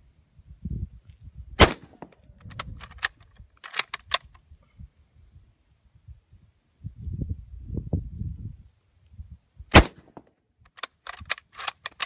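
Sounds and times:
rifle shot: 1.6 - 2.2, 9.7 - 10.3.

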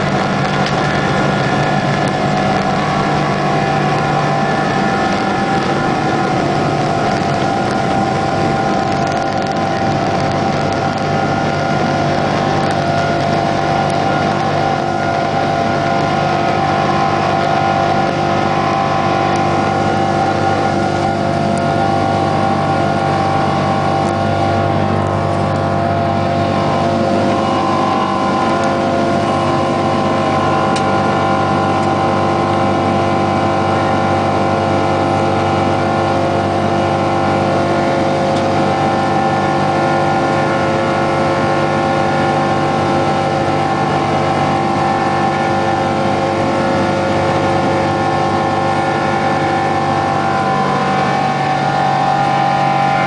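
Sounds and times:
jet engines in cabin: 0.0 - 53.0.

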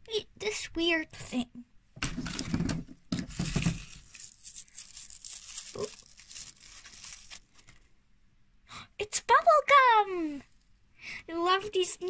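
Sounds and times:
wrapper tearing and crinkling: 3.3 - 7.8.

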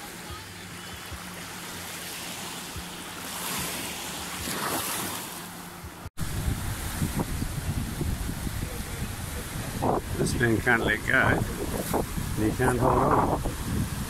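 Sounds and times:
gentle sea waves: 0.0 - 14.0
wind buffeting microphone: 6.2 - 14.0.

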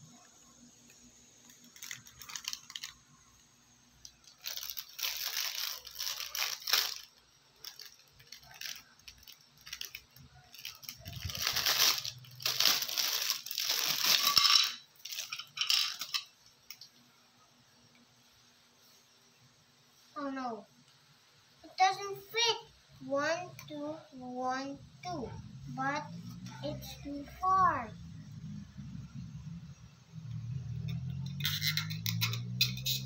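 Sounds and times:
plastic wrapping crinkling: 1.4 - 3.0, 4.0 - 16.9.

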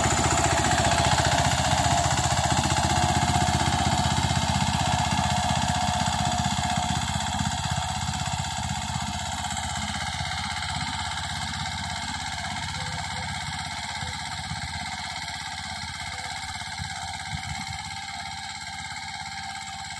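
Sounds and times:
tractor diesel engine thudding: 0.0 - 15.3.

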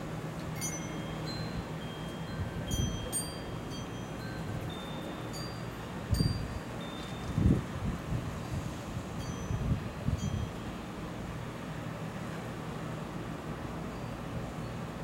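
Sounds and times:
wind chimes ringing: 0.4 - 7.6, 9.2 - 10.8, 13.8 - 15.0
wind buffeting microphone: 2.3 - 10.6.

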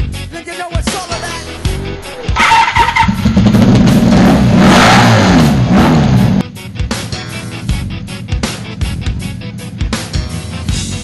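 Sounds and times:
music with heavy drum beat: 0.0 - 11.0
sung or rapped vocals: 0.2 - 2.4.

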